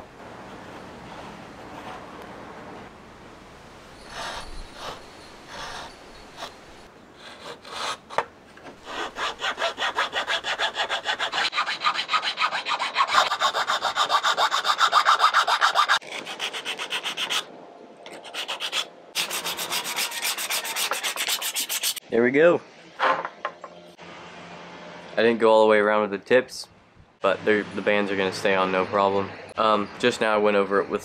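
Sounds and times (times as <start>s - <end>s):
sandpaper rubbing wood: 4.1s - 8.1s, 8.8s - 17.5s, 18.2s - 22.0s
file rasping wood: 4.1s - 17.5s, 18.2s - 22.0s.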